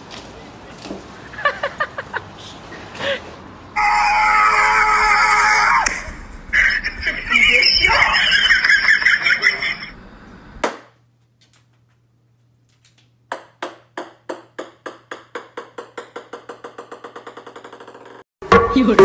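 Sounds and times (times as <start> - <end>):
ping-pong ball bouncing on wood floor: 13.3 - 18.2.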